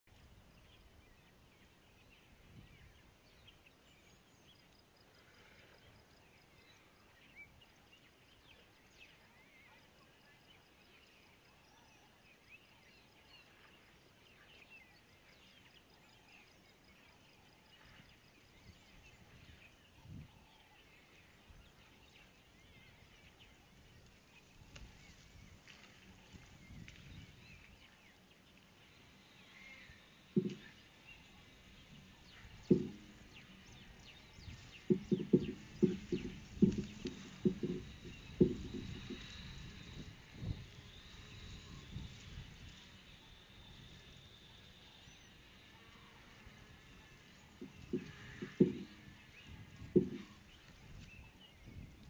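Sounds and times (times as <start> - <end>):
soft low thumps: 30.3 - 42.4, 46.9 - 52.0.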